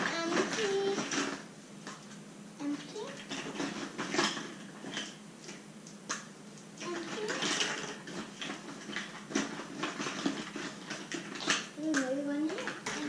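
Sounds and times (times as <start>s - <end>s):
plastic eggs clattering: 0.0s - 2.0s, 2.6s - 5.2s, 6.8s - 13.0s.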